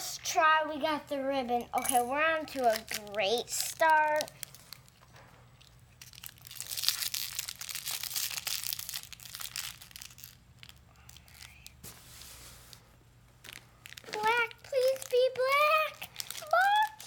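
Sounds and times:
wrapper crinkling and tearing: 2.5s - 12.8s, 13.4s - 17.0s.

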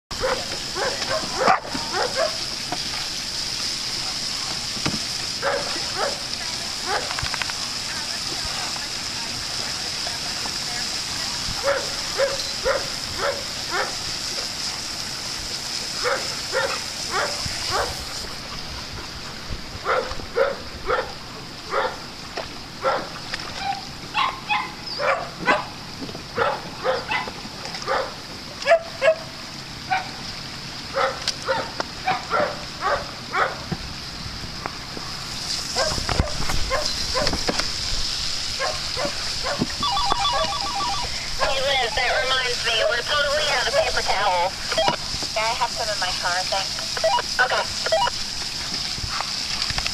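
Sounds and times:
water sprinkler spray hissing: 0.1s - 49.9s
dog barking: 0.2s - 2.4s, 5.4s - 6.2s, 6.8s - 7.1s, 11.6s - 14.0s, 16.0s - 18.0s, 19.8s - 22.0s, 22.8s - 23.1s, 24.2s - 25.8s, 26.4s - 29.3s, 29.9s - 30.2s, 30.9s - 33.6s, 35.8s - 37.3s, 38.6s - 39.7s.

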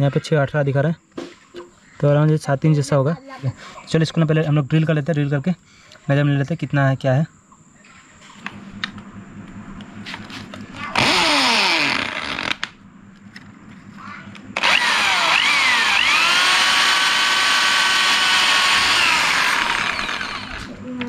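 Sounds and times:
electric drill boring through metal: 11.0s - 12.7s, 14.6s - 20.8s.

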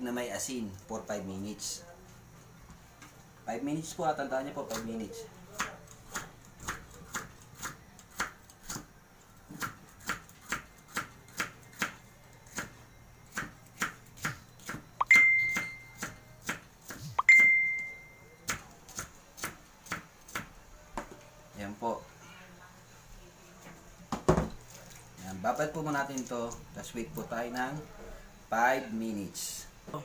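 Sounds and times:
knife chopping on wooden board: 9.5s - 14.8s, 15.6s - 17.1s
high ringing ping: 15.0s - 16.0s, 17.2s - 18.4s.

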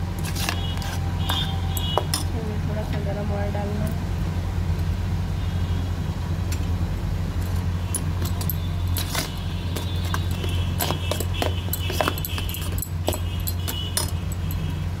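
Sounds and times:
spoon clinking and scraping metal bowl: 8.0s - 14.7s.

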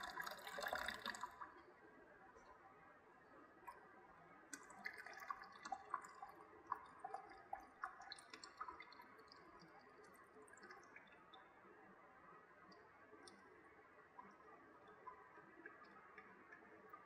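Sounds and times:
drips into plastic bucket: 0.0s - 1.7s, 4.5s - 11.5s.

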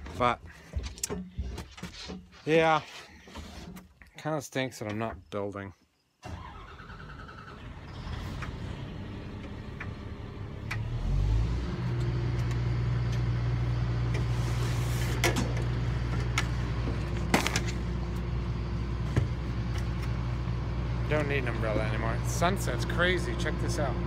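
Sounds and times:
diesel engine starting and running: 6.2s - 24.0s.

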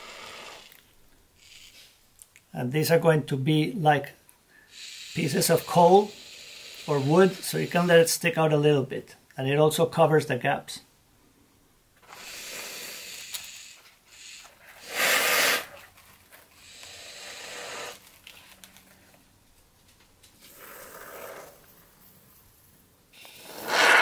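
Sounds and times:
aerosol foam spraying: 4.7s - 8.0s.

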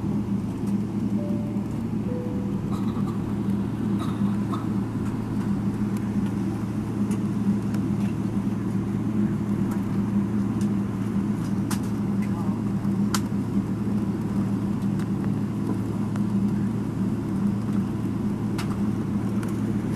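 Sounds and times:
airliner engine hum and rumble: 0.0s - 19.9s.

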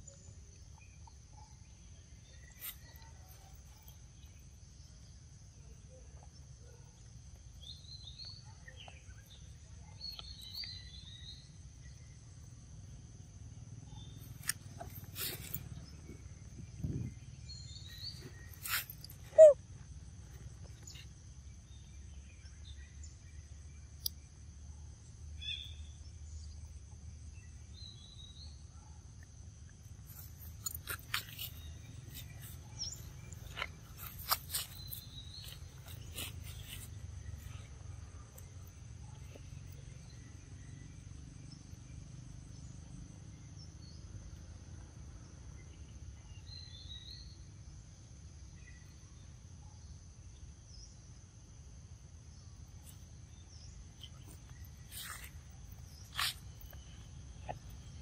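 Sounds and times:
birds chirping: 14.0s - 19.6s.

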